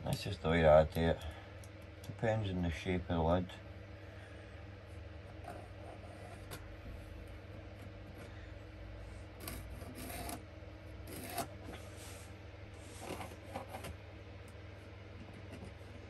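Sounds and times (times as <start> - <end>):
steady low hum: 0.0 - 16.0
pencil scratching on wood: 9.4 - 10.4, 11.1 - 11.5.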